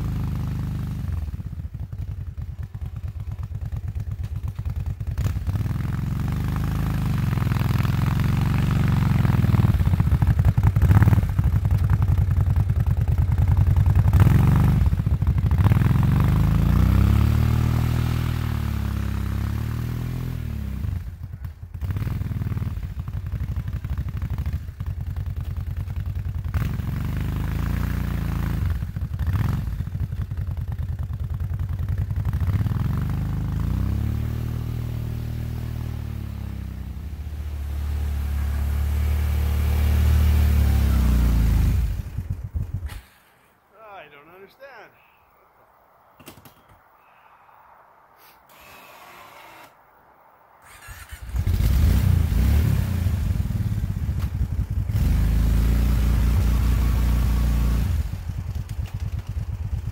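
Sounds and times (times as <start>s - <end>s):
engine revving: 0.0s - 2.1s, 4.6s - 25.1s, 26.4s - 30.3s, 31.6s - 43.2s, 50.6s - 58.3s.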